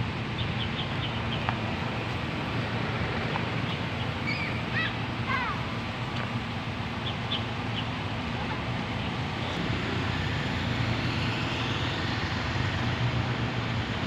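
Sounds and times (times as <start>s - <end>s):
street rumble: 0.0s - 14.0s
motorcycle passing: 6.9s - 14.0s.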